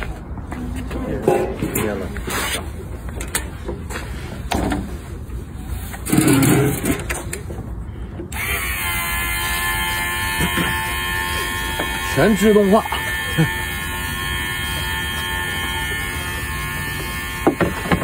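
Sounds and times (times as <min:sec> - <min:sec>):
electric fuel pump whining: 0:08.2 - 0:18.0.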